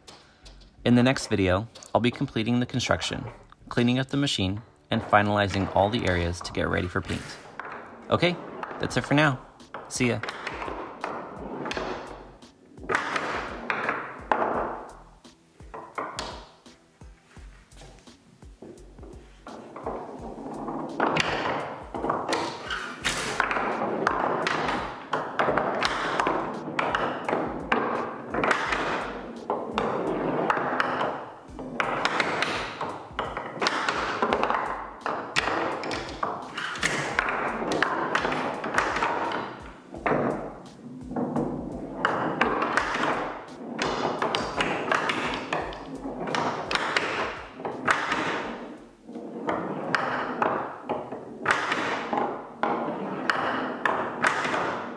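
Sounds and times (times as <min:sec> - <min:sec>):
balls rolling and clacking on wood: 0:00.0 - 0:54.9.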